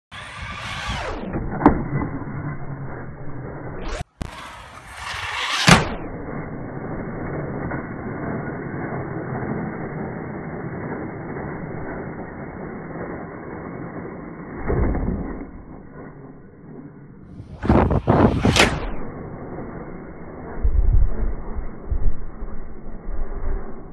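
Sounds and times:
low dull rumble: 0:05.8 - 0:23.9
rising whoosh: 0:17.3 - 0:23.9.

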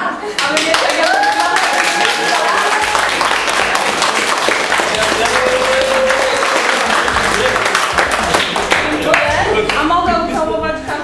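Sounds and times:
group applauding: 0:00.3 - 0:09.9.

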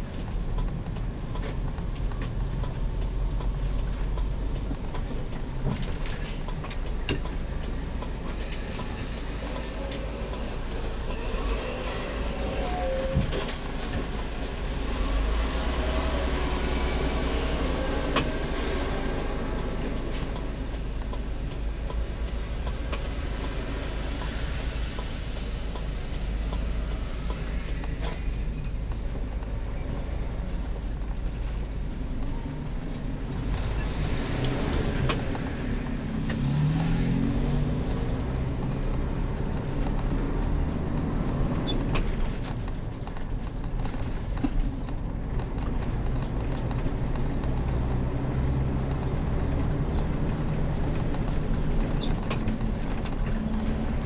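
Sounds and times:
engine and road rumble: 0:00.0 - 0:54.0.

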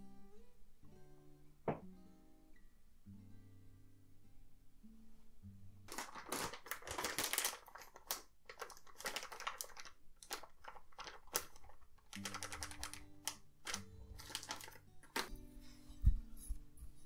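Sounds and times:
acoustic guitar music: 0:00.0 - 0:06.1, 0:12.1 - 0:17.0
powder pouring into metal bowl: 0:05.9 - 0:15.2
plastic bag crinkling: 0:05.9 - 0:15.3.

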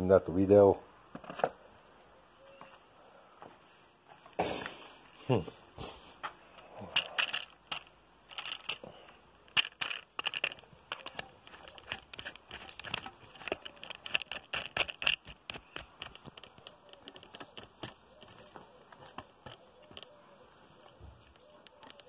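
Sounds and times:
camera tripod handling clicks and knocks: 0:09.6 - 0:18.4.

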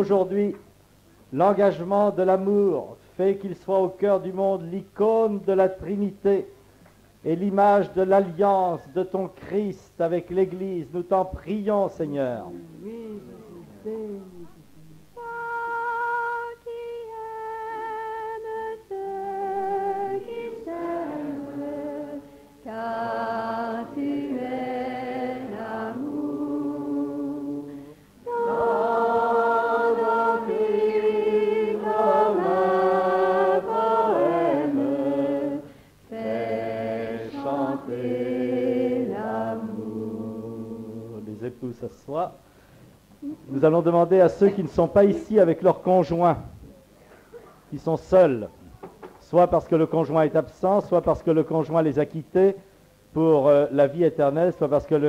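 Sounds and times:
group chanting a sung prayer: 0:15.2 - 0:42.1.

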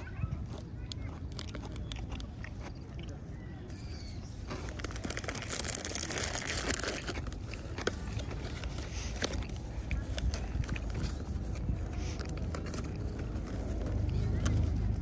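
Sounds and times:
steady low rumble: 0:00.0 - 0:15.0
food packaging crinkling and tearing: 0:03.8 - 0:15.0.

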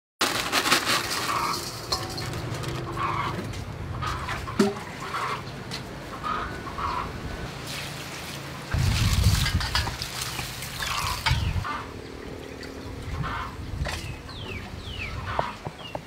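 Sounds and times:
plastic bag crinkling: 0:00.2 - 0:03.0
chickens clucking: 0:00.9 - 0:07.3, 0:09.4 - 0:16.0.

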